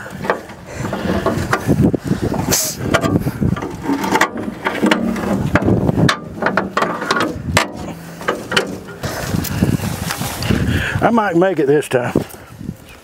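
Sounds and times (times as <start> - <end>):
clanks on sheet metal: 2.9 - 9.1.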